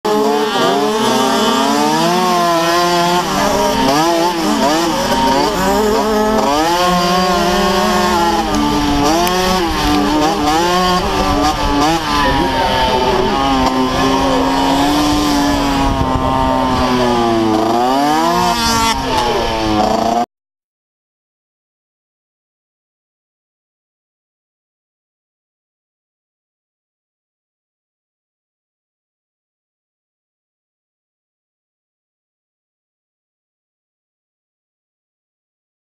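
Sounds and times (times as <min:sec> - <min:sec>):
dirt bike engine revving: 0:00.1 - 0:20.3.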